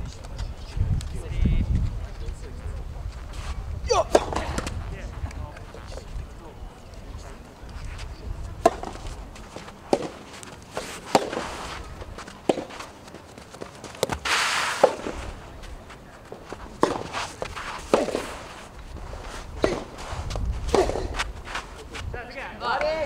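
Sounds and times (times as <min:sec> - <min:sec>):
shoes sliding on court: 0:07.7 - 0:22.1
tennis ball popping off rackets: 0:08.6 - 0:15.3, 0:16.3 - 0:18.4, 0:19.6 - 0:21.3.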